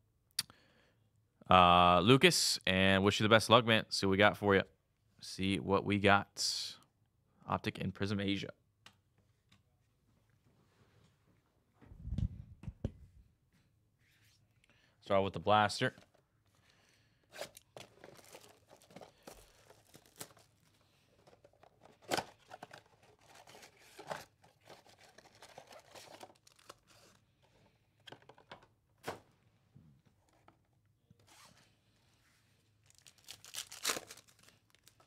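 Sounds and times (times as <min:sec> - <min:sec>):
foil card pack tearing: 0:17.3 - 0:20.8, 0:32.9 - 0:35.0
plastic wrap crinkling: 0:17.4 - 0:27.1, 0:32.8 - 0:35.0.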